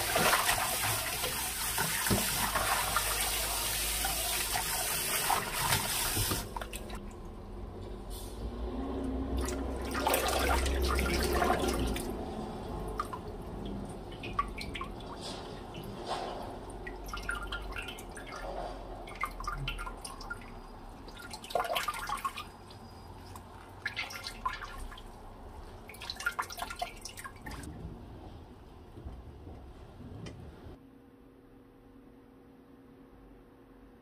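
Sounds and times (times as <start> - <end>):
water dripping into a steel bowl: 12.9 - 15.2.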